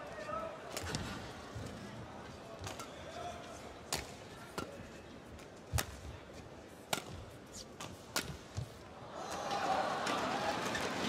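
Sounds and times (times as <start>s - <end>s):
crowd noise: 0.0s - 11.0s
rackets hitting shuttlecock: 3.8s - 6.2s, 6.8s - 8.8s.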